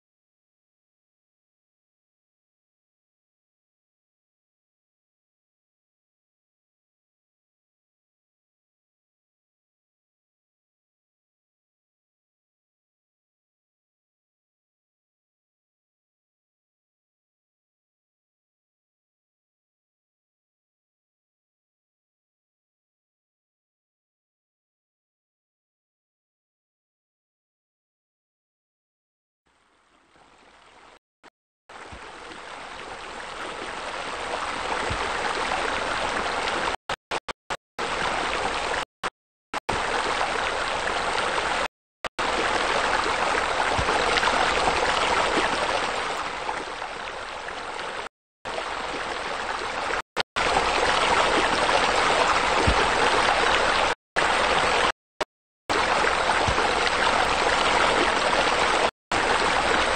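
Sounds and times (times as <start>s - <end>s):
running water: 31.7s - 38.9s, 39.6s - 55.0s, 55.7s - 59.9s.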